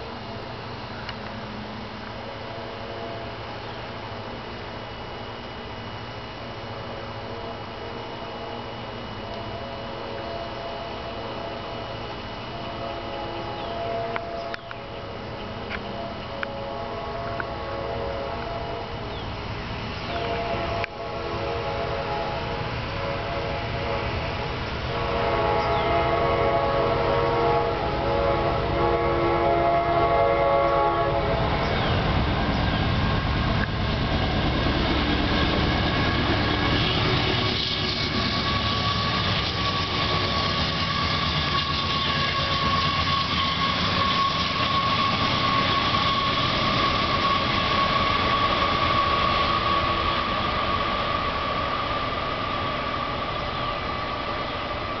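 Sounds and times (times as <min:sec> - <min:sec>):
locomotive engine rumble: 0:00.0 - 0:55.0
steady high whine: 0:00.0 - 0:55.0
locomotive air horn blasts: 0:02.2 - 0:03.6, 0:06.8 - 0:33.9, 0:34.9 - 0:54.8
wheels on rails: 0:31.5 - 0:55.0.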